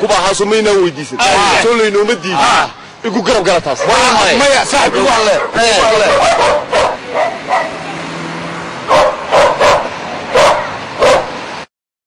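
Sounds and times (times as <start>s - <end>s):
dog barking: 3.7s - 4.2s, 4.9s - 7.8s, 8.9s - 11.4s.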